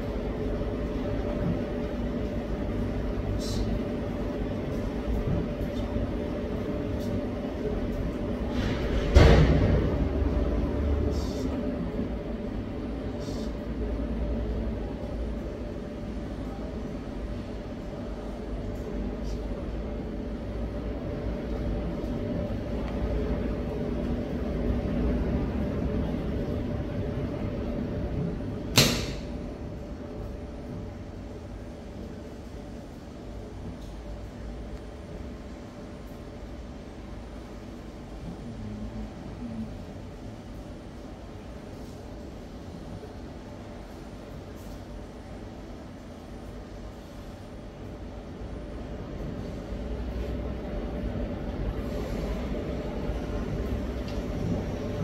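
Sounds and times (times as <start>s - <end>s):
low rumble with faint hum: 0.0s - 55.0s
sharp knock: 28.7s - 29.3s.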